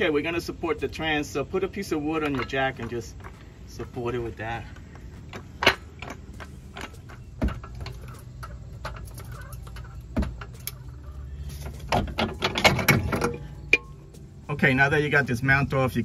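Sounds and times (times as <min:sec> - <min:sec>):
low steady hum: 0:00.0 - 0:16.0
metal tools clicking and knocking: 0:01.8 - 0:14.0.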